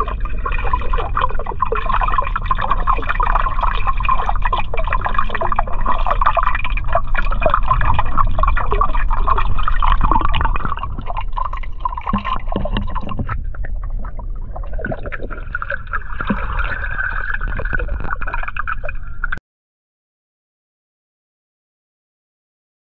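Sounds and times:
muffled underwater bubbling: 0.0s - 19.4s.

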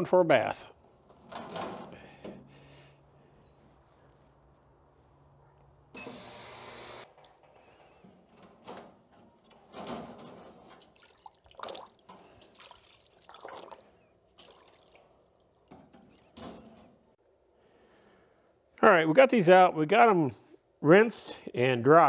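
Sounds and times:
liquid sloshing and dripping: 10.6s - 16.4s.

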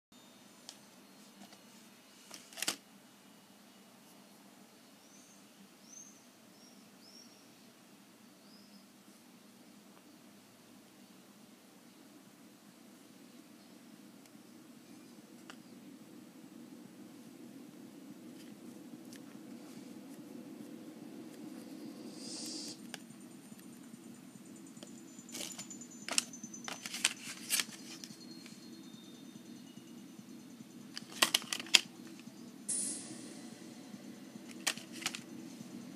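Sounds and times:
steady low hum: 9.2s - 35.9s
faint high-pitched chirps: 21.6s - 31.0s, 31.9s - 35.9s.

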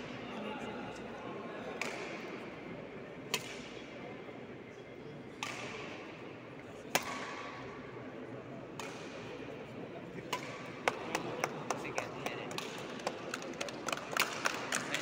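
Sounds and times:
murmur of voices: 0.0s - 15.0s
racket striking shuttlecock: 1.8s - 2.2s, 3.3s - 3.7s, 5.3s - 6.0s, 6.9s - 7.7s, 8.8s - 9.3s, 10.3s - 11.2s.

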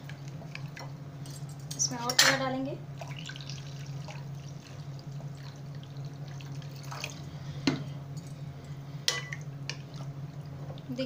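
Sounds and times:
steady low hum: 0.0s - 11.0s
water pouring into a bowl: 3.0s - 7.3s.

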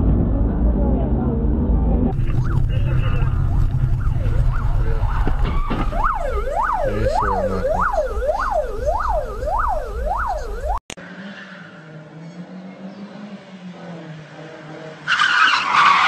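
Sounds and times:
low rumble of road noise: 0.0s - 16.0s
siren yelping: 2.1s - 11.0s.

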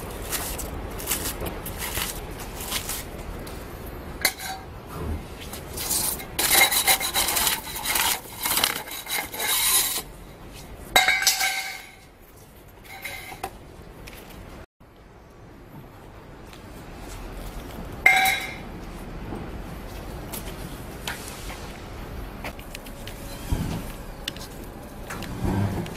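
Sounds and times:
hand tool scraping foam: 5.6s - 10.1s.

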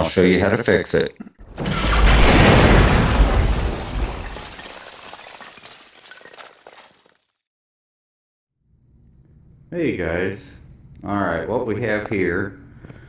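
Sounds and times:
explosion with shattering debris: 1.4s - 7.2s.

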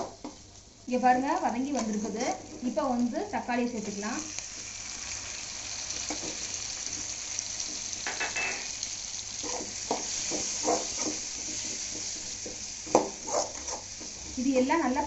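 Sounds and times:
vegetables sizzling in oil: 0.0s - 15.0s
spoon scraping pan: 9.3s - 14.3s.

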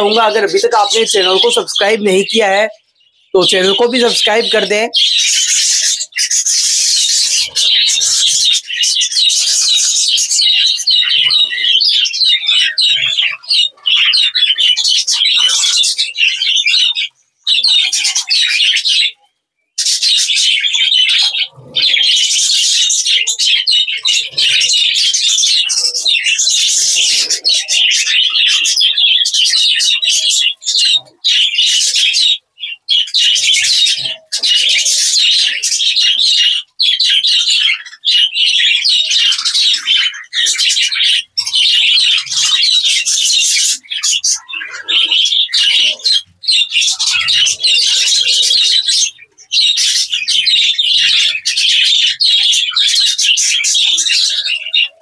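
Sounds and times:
budgerigars chattering and warbling: 0.0s - 55.0s.

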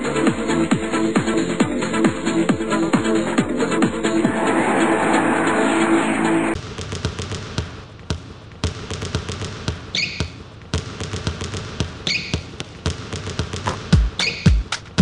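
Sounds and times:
electronic music: 0.0s - 6.6s
balls bouncing on a hall floor: 6.6s - 15.0s.

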